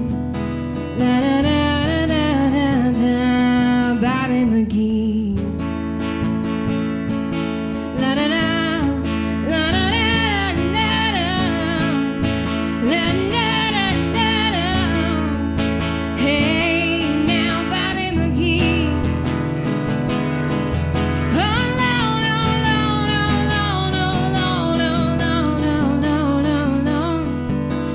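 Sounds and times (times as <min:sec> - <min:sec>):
acoustic guitar strumming: 0:00.0 - 0:27.9
person singing: 0:07.9 - 0:19.2, 0:21.3 - 0:27.9.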